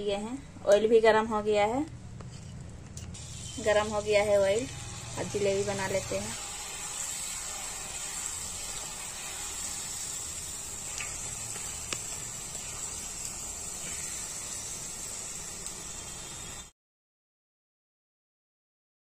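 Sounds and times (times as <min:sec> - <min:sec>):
batter sizzling in hot oil: 0:03.0 - 0:16.7.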